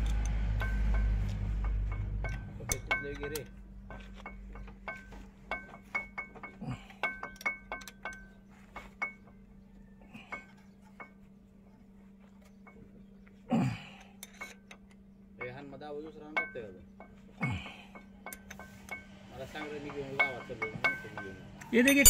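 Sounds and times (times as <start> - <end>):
spanner clinking on metal bolts: 0.0 - 9.4, 14.0 - 22.0
low steady hum: 0.0 - 22.0.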